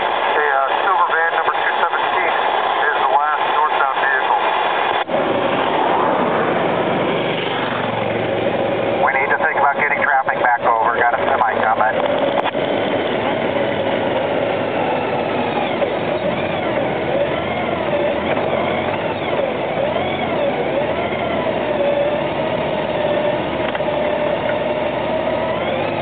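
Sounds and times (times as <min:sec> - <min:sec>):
motorcycle engine cruising: 0:05.0 - 0:09.6, 0:10.4 - 0:26.0.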